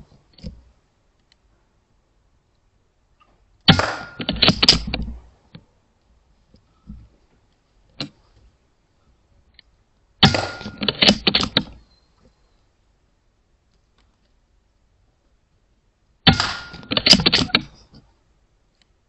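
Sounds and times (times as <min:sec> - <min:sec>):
air rifle shot crack: 0:03.7 - 0:05.0, 0:16.3 - 0:17.6
clicks and rattles: 0:03.7 - 0:05.6, 0:09.5 - 0:11.8, 0:16.3 - 0:18.1.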